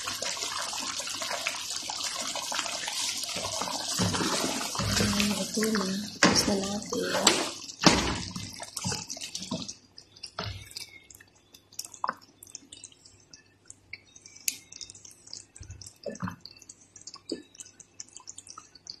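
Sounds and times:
sauce simmering and bubbling: 0:00.0 - 0:19.0.

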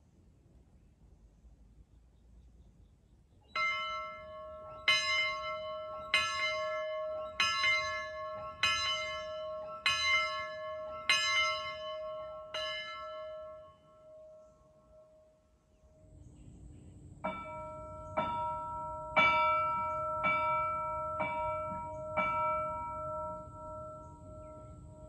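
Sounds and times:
steam locomotive bell ringing: 0:03.5 - 0:14.3, 0:17.3 - 0:25.0.

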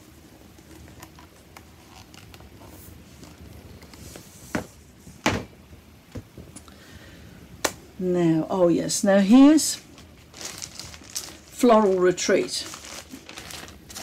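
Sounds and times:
framed pictures handled and knocking: 0:04.2 - 0:06.4.

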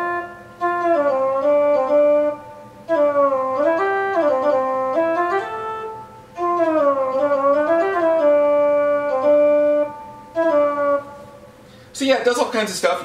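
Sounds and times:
synthesized theremin notes: 0:00.0 - 0:11.5.

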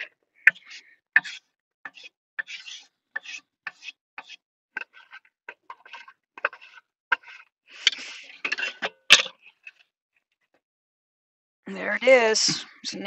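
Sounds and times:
knife scraping wooden cutting board: 0:00.5 - 0:09.5.

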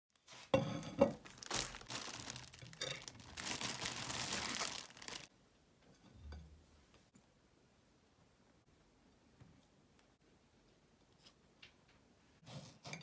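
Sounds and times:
crinkling and rustling: 0:00.1 - 0:05.3
sharp crackles: 0:01.3 - 0:05.3.

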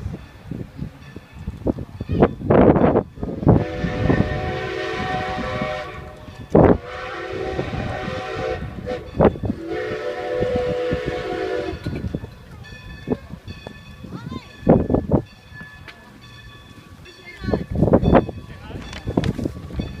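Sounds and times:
steam locomotive whistle: 0:03.3 - 0:12.1.

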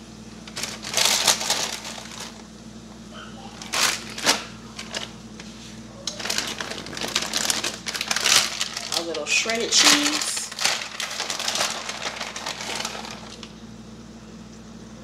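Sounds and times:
plastic bag crinkling: 0:00.4 - 0:02.5, 0:03.6 - 0:13.6.

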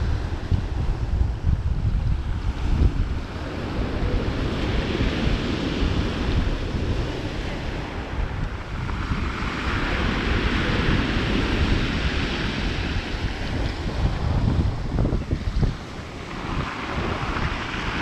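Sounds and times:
wind rumble on microphone: 0:00.0 - 0:18.0
surf breaking on pebble beach: 0:04.3 - 0:18.0.

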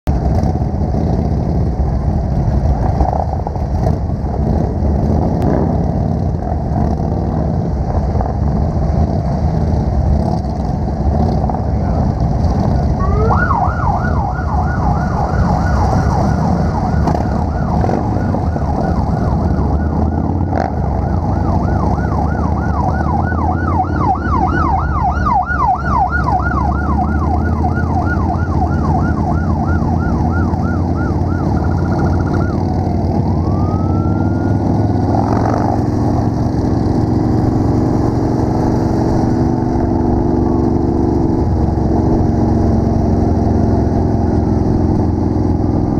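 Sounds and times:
motorcycles running: 0:00.1 - 0:45.9
siren yelping: 0:11.8 - 0:42.4.

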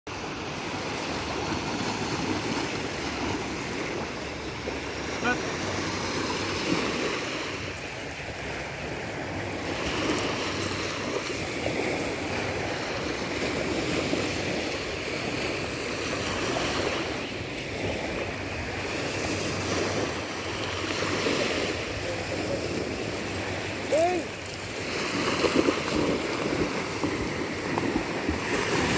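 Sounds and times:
waves washing on gravel shore: 0:00.1 - 0:28.9.

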